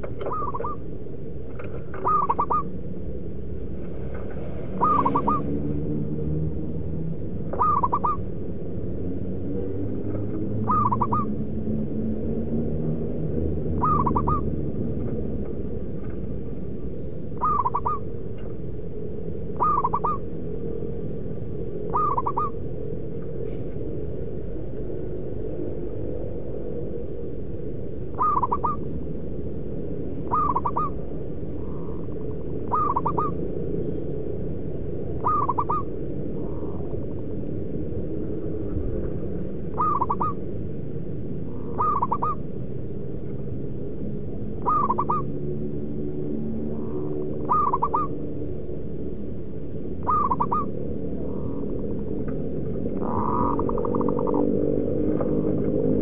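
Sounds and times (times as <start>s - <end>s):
dove cooing: 0.0s - 0.9s, 1.8s - 2.8s, 4.7s - 5.6s, 7.5s - 8.3s, 10.6s - 11.4s, 13.7s - 14.8s, 17.4s - 18.1s, 19.6s - 20.3s, 21.9s - 22.6s, 28.1s - 28.9s, 30.2s - 31.0s, 31.6s - 33.4s, 35.2s - 37.4s, 39.7s - 40.5s, 41.5s - 42.4s, 44.5s - 45.5s, 46.6s - 48.2s, 50.0s - 52.0s, 52.8s - 54.5s
steady low rumble: 0.0s - 56.0s.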